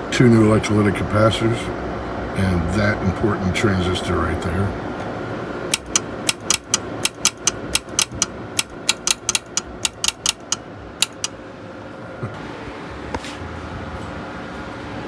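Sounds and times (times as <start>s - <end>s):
relay clicking rapidly: 5.7s - 11.3s.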